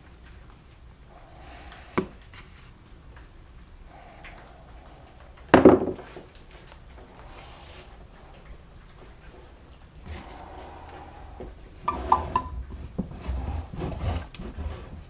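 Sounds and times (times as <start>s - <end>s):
objects knocking on a bench: 5.6s - 6.2s, 11.9s - 13.1s.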